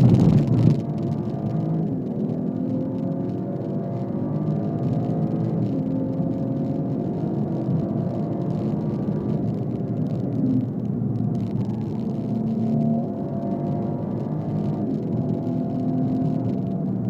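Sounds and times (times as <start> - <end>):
car engine at speed: 0.0 - 17.0
road and tyre noise: 0.0 - 17.0.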